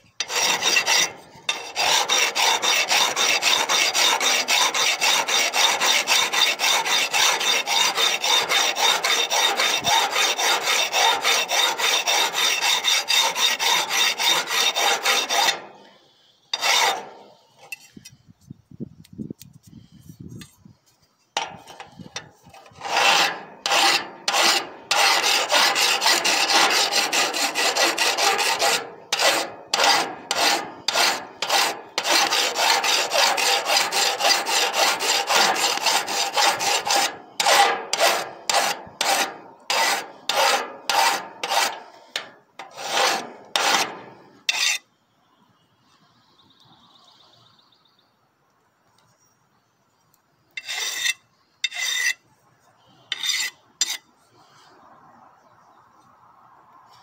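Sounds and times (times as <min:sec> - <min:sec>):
hand file rasping on steel: 0:00.0 - 0:15.9, 0:16.5 - 0:17.9, 0:21.4 - 0:44.8, 0:50.6 - 0:52.2, 0:53.1 - 0:54.0.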